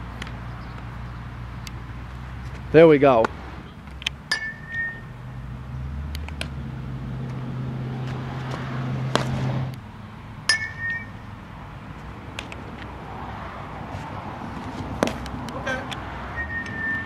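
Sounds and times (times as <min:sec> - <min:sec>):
metal bat hitting softball: 0:04.3 - 0:05.1, 0:10.4 - 0:11.2.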